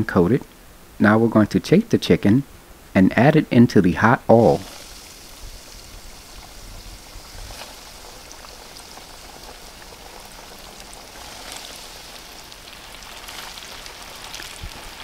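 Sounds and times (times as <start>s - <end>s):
chicken deep-frying in oil: 4.4s - 15.0s.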